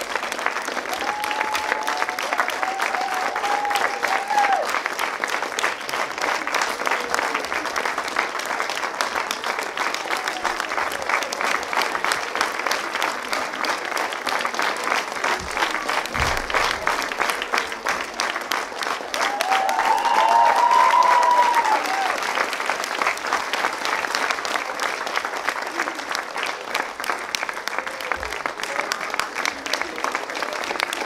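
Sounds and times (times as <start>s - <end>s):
audience applauding: 0.0s - 31.0s
faint voices: 5.9s - 19.4s.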